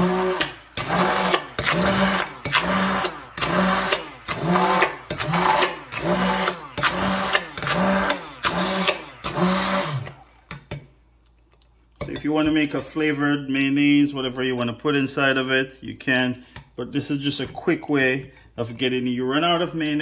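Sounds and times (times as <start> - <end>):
immersion blender running: 0.0 - 10.7.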